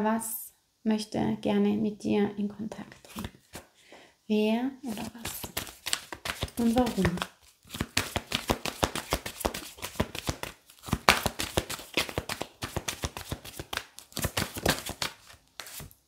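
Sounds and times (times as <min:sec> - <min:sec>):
cards being shuffled: 0:03.0 - 0:03.7, 0:04.9 - 0:16.0.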